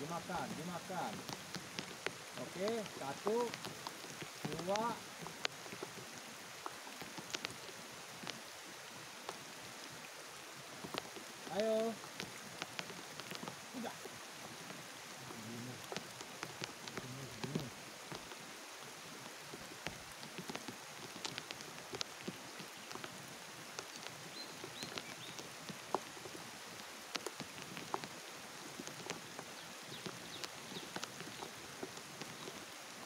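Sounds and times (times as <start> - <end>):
rain falling on water: 0.0 - 33.0
drops ticking: 0.1 - 8.5, 19.5 - 32.6.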